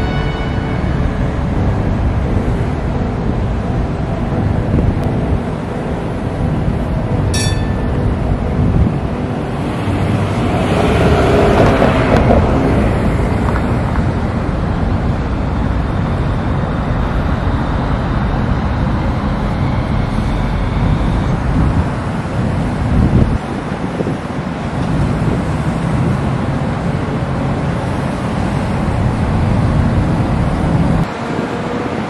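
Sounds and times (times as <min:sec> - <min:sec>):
vehicle passing: 0:00.0 - 0:23.8
road traffic: 0:00.0 - 0:32.0
wind rumbling on microphone: 0:00.8 - 0:32.0.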